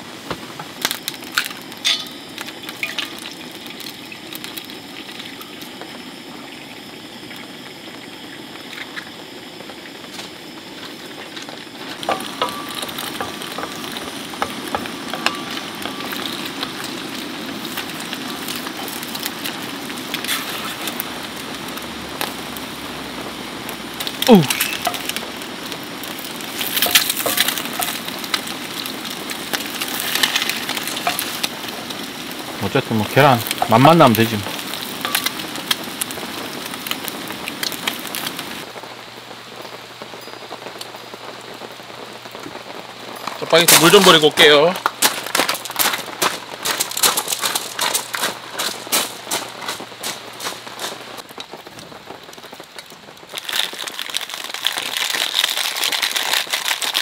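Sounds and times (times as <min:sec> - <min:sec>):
eggs sizzling in oil: 0:00.0 - 0:57.0
eggshell cracking: 0:24.0 - 0:25.4, 0:26.1 - 0:32.0.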